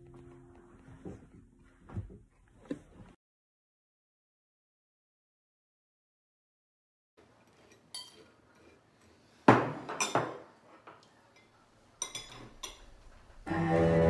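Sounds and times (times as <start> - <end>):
cutlery and dishes clinking: 7.5 - 8.8, 9.6 - 13.2.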